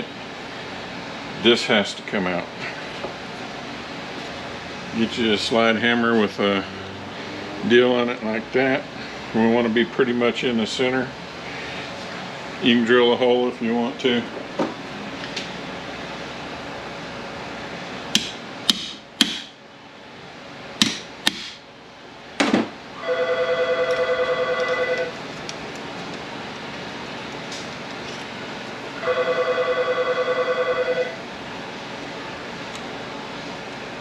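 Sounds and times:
telephone ringing: 23.0s - 25.2s, 29.0s - 31.2s.

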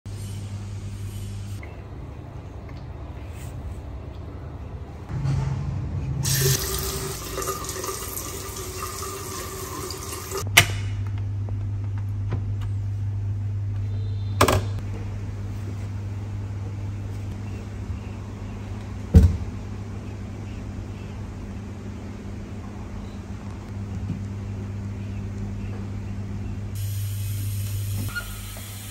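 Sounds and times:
steady low hum: 0.1s - 28.1s
faucet water running: 6.2s - 10.5s, 26.8s - 28.9s.

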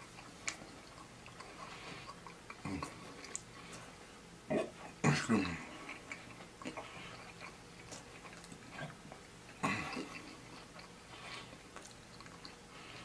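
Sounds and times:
person chewing food: 0.0s - 13.0s
wet mouth clicks and smacks: 2.1s - 3.5s.

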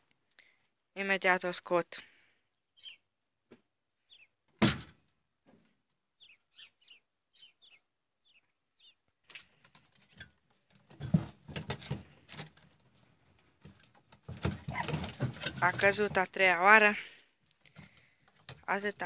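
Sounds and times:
small bird chirping: 2.6s - 3.1s, 4.0s - 4.4s, 6.2s - 9.0s.

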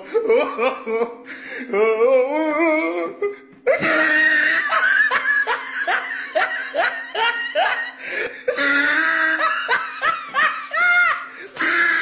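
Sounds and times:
person laughing: 3.7s - 12.0s.

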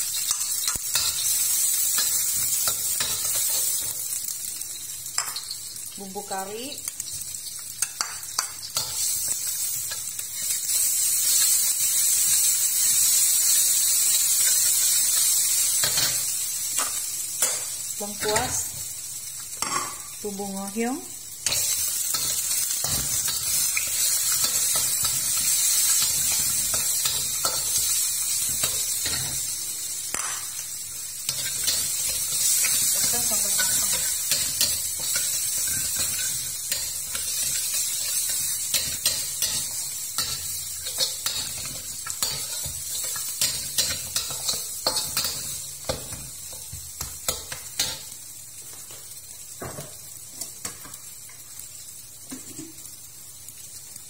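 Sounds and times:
food sizzling in hot oil: 0.0s - 54.0s.

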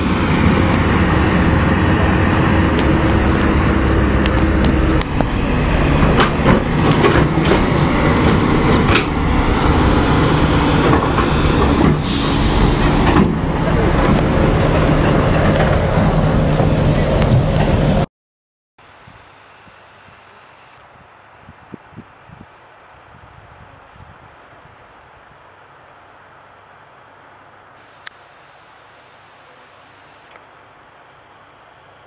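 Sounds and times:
excavator diesel engines running: 0.0s - 18.1s
sharp knocks and clanks: 6.0s - 9.2s.

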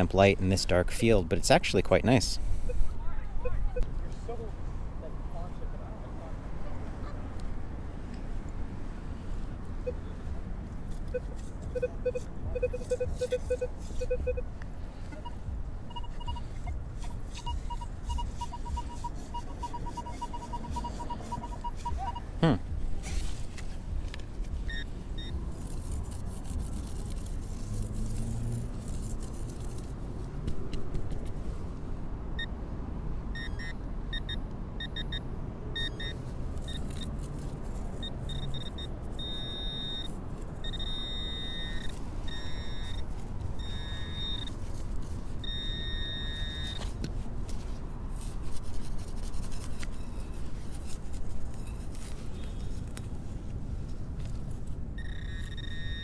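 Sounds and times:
metal detector pinpointer beeps: 11.1s - 14.4s, 15.2s - 16.8s, 17.4s - 22.3s, 24.7s - 25.4s, 33.3s - 35.2s, 35.8s - 37.1s, 38.0s - 44.6s, 45.4s - 46.9s, 55.0s - 56.0s.

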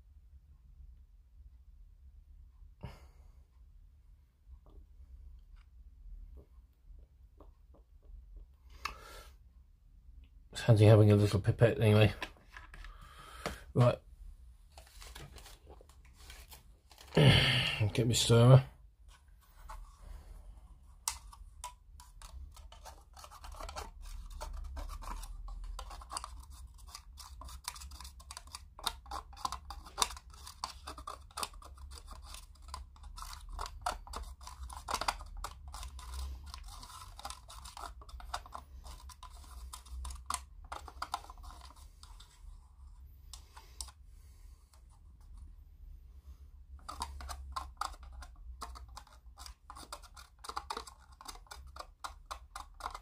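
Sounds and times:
paint stirrer scraping in pot: 21.2s - 42.6s, 46.8s - 53.0s.

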